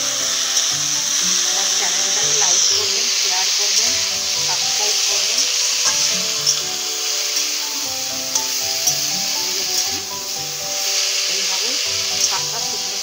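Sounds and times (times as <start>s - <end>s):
instrumental music: 0.0s - 13.0s
spinach sizzling in hot oil: 0.0s - 13.0s
metal spatula scraping a pan: 0.1s - 13.0s.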